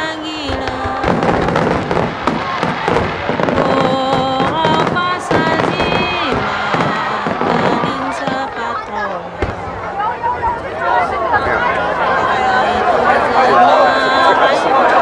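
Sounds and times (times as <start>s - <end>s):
fireworks bursting and crackling: 0.0s - 9.9s.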